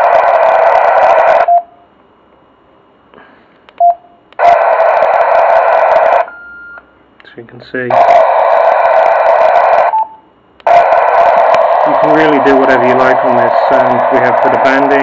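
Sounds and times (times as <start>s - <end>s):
radio speaker harsh noise bursts: 0.0s - 1.5s, 4.4s - 6.3s, 7.8s - 10.1s, 10.7s - 15.0s
key beeps: 3.8s - 4.1s.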